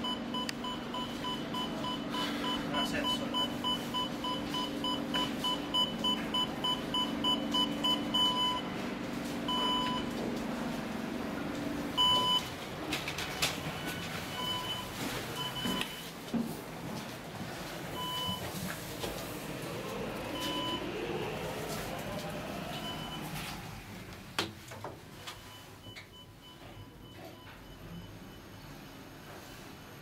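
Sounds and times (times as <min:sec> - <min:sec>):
elevator beeping: 0:00.0 - 0:10.3, 0:11.2 - 0:16.1, 0:17.3 - 0:24.1
low hum: 0:16.8 - 0:24.4.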